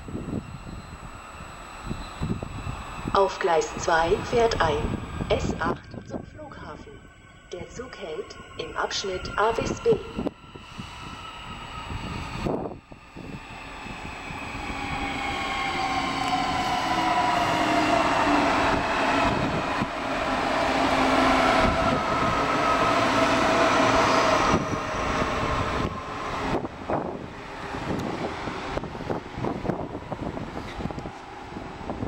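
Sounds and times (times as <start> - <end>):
train motor whine: 0.0 - 6.0
wheels rumbling on rail: 7.8 - 32.0.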